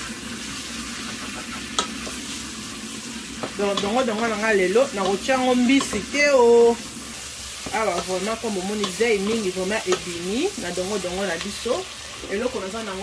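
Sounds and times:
vegetables sizzling: 0.0 - 13.0
wooden spoon stirring in pot: 3.3 - 11.6.

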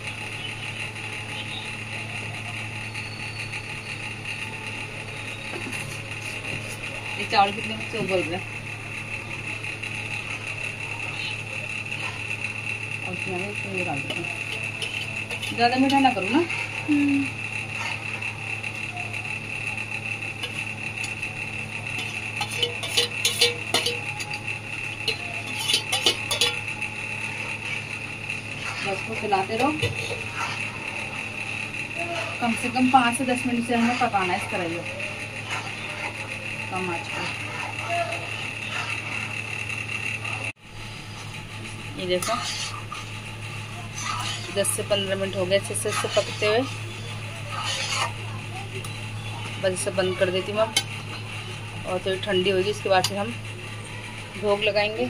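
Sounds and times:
low hum: 0.0 - 55.0
spoon scraping steel pot: 13.9 - 16.8, 21.9 - 26.8, 28.4 - 31.2, 32.2 - 39.3, 42.0 - 43.1, 43.9 - 48.2.

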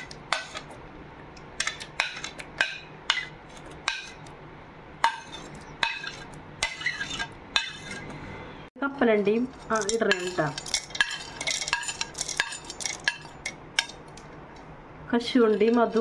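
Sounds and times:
utensil clinking on metal jar: 9.6 - 14.0.

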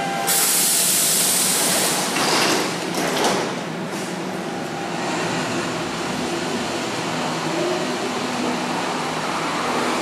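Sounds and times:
mechanical hum of train: 0.0 - 10.0
air hiss of train doors: 0.2 - 2.4
train doors sliding shut: 0.2 - 4.4.

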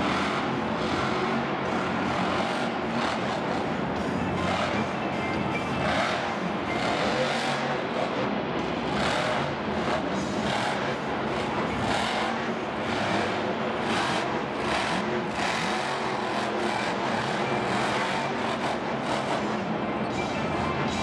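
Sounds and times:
truck engine revving: 0.0 - 21.0.

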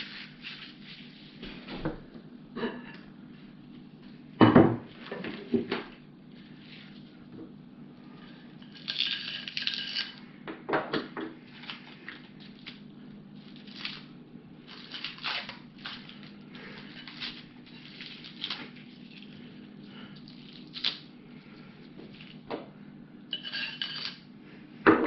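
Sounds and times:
plastic packaging crinkling: 11.5 - 19.6, 20.2 - 21.2.

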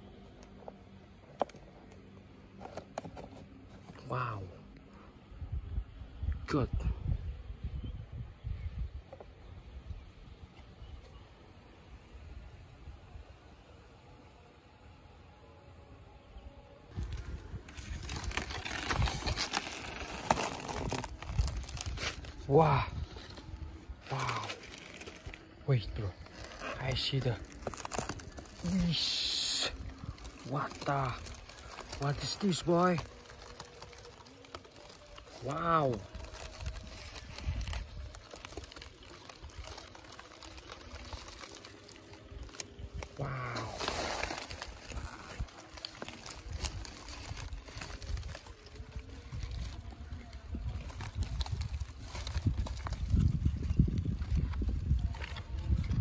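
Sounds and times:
dry leaves crackling and rustling: 16.9 - 56.0.

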